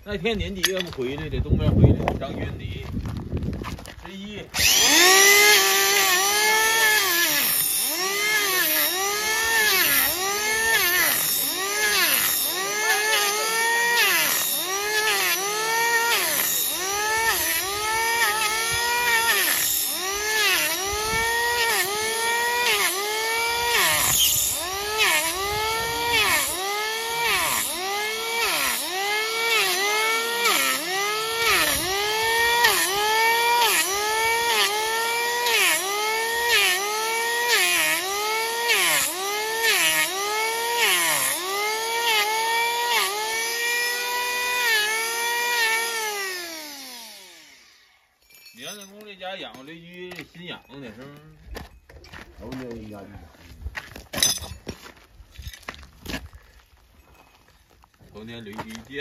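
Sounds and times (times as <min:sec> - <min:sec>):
electric planer shaving hoof: 0:04.5 - 0:48.0.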